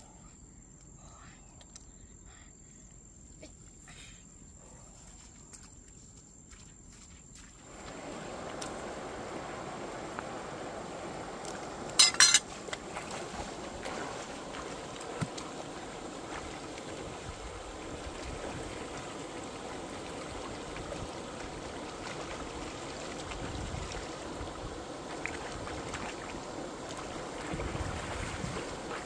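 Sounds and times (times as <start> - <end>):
wading footsteps splashing: 5.2 - 10.4, 11.4 - 29.0
shallow river flowing: 7.4 - 29.0.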